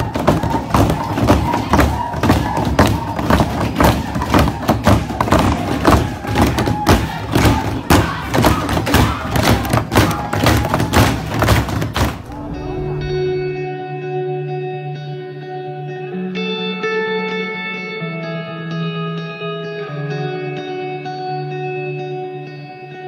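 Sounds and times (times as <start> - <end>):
group voices: 0.0 - 11.4, 12.1 - 13.7
hands pounding on wooden tables: 0.0 - 12.2.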